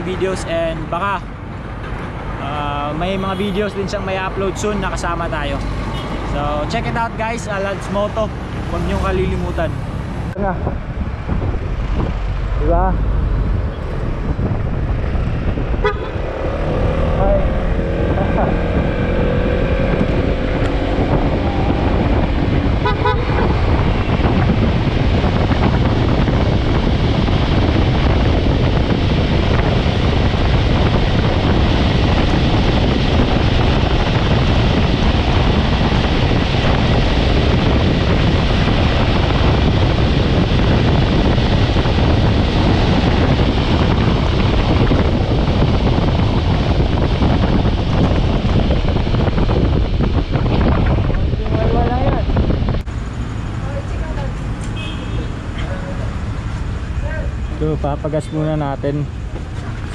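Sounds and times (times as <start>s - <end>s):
scooter engine and road noise: 0.0s - 59.9s
wind rushing over microphone: 0.0s - 59.9s
vehicle horn toot: 5.9s - 6.3s, 15.8s - 16.2s, 22.8s - 23.5s, 54.7s - 55.4s.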